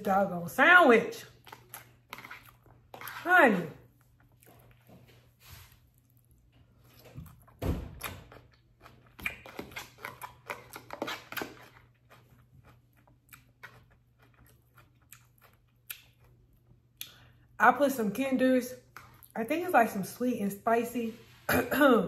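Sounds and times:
eating with clicks and crackles: 0:01.2 - 0:17.6, 0:18.8 - 0:19.4.

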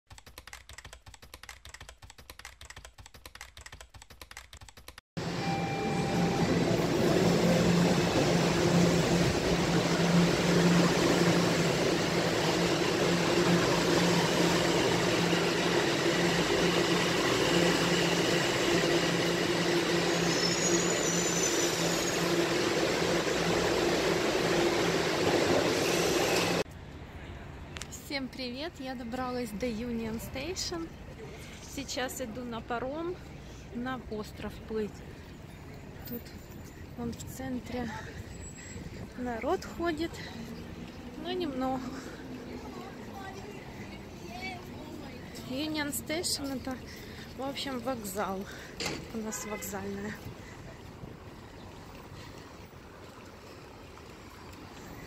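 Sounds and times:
rapid quiet clicking: 0:00.1 - 0:05.0
subway train running: 0:05.2 - 0:27.8, 0:35.2 - 0:55.0.

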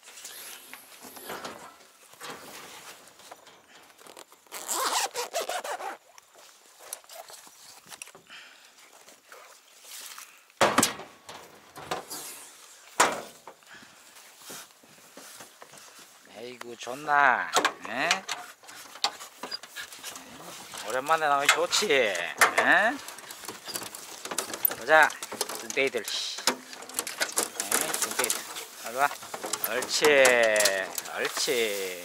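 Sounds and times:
metal box scraping and rattling: 0:18.1 - 0:31.8.

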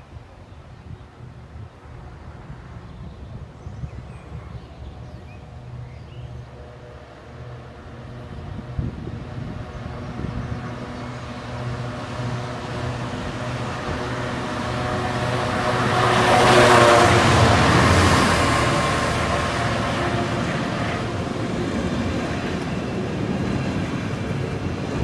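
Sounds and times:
rushing of passing train: 0:00.0 - 0:25.0
diesel locomotive engine running: 0:05.6 - 0:25.0.

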